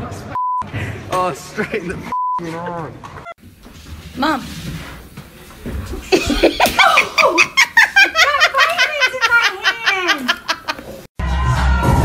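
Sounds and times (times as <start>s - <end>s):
woman laughing: 6.0s - 11.0s.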